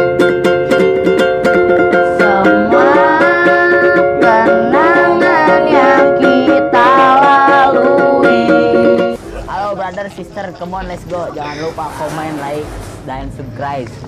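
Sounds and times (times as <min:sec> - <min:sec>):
ukulele strumming: 0:00.0 - 0:09.4
voices singing along: 0:01.8 - 0:09.2.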